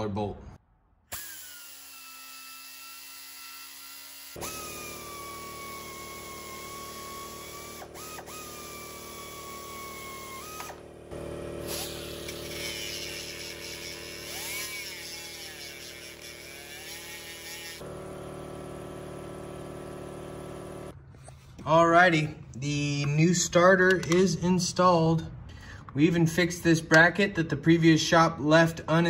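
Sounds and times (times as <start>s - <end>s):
high-pitched power tool motor whine: 1.1s - 20.9s
cut-off wheel grinding bolt: 4.4s - 17.8s.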